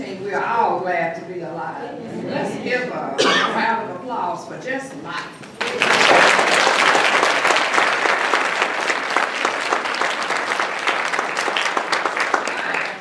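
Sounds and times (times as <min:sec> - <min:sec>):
audience applause: 0:05.6 - 0:13.0.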